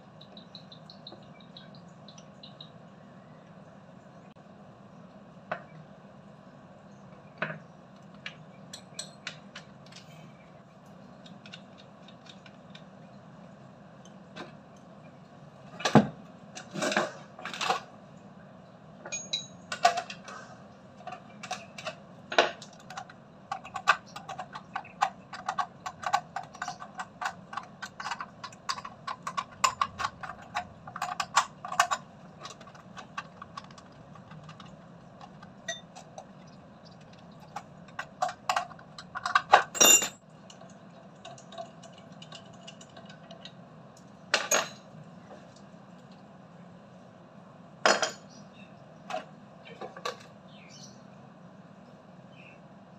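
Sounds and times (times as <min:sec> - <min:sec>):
tools clinking on plastic: 0:21.0 - 0:40.2.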